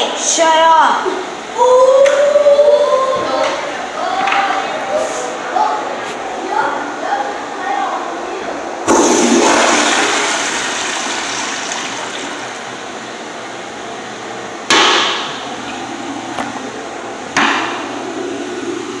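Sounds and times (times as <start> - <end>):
toilet flush click: 8.9 - 12.5
toilet water rushing: 8.9 - 13.0.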